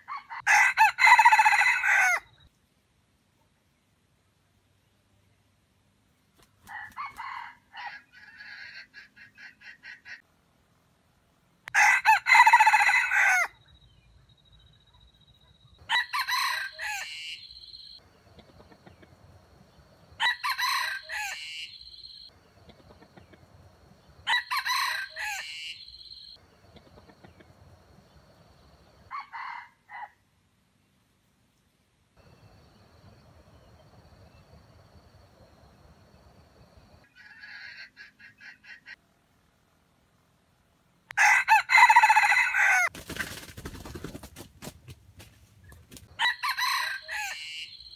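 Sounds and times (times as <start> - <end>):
rooster crowing: 0.0 - 2.4, 6.7 - 8.9, 11.7 - 13.6, 15.8 - 17.9, 20.2 - 22.2, 24.2 - 26.3, 41.2 - 42.9, 46.1 - 47.9
rooster clucking: 6.6 - 10.3, 18.3 - 19.3, 22.6 - 23.6, 26.7 - 27.7, 37.0 - 39.0.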